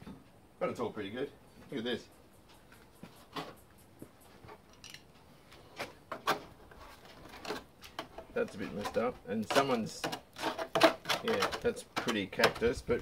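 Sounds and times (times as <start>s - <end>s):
knocks and scrapes on sheet steel: 5.8s - 12.8s.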